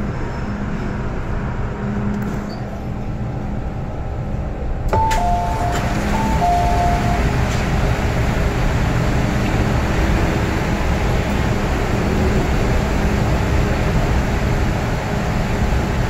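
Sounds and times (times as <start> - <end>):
train hum: 0.0 - 16.0
two-note electronic door chime: 5.0 - 7.6.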